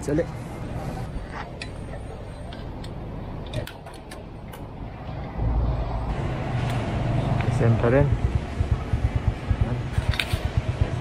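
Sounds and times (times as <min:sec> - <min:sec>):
low vehicle rumble: 0:04.1 - 0:11.0.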